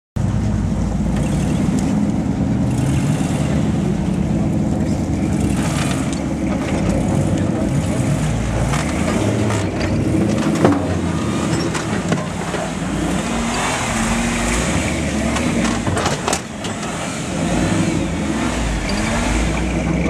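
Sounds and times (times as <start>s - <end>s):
truck engine revving: 0.2s - 20.0s
knocks and rattles: 8.5s - 17.0s.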